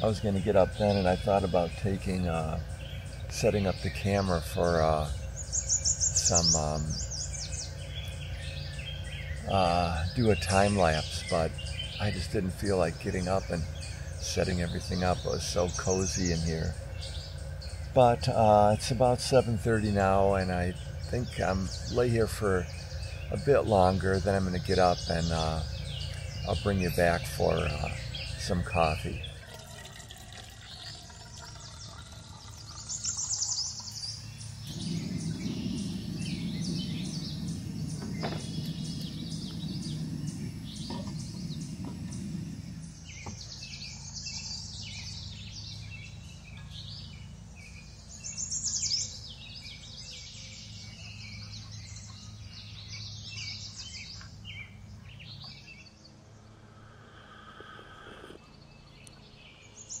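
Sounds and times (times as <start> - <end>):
songbirds chirping and singing: 0.0 - 60.0
low rushing noise: 34.2 - 44.0.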